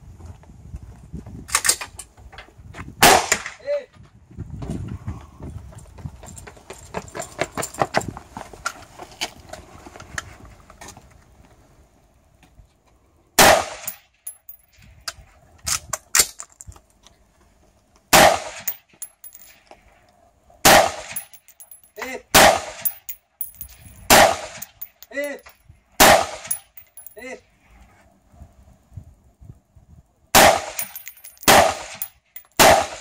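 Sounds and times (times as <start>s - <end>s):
light clatter: 22.8s - 25.6s, 26.5s - 27.2s, 30.8s - 32.6s
rifle shots: 24.1s - 24.6s, 30.4s - 33.0s.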